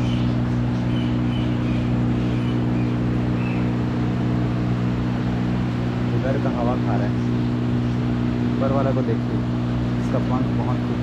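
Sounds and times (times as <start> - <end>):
bird chirping: 0.0 - 4.2
air cooler fan rushing: 0.0 - 11.0
low motor hum: 0.0 - 11.0.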